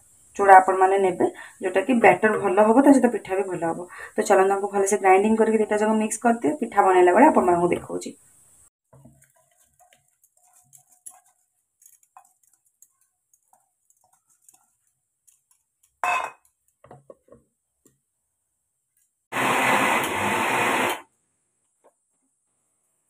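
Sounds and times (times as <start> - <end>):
steel jar and lid clatter: 9.0 - 16.5
mixer grinder grinding: 19.3 - 21.1.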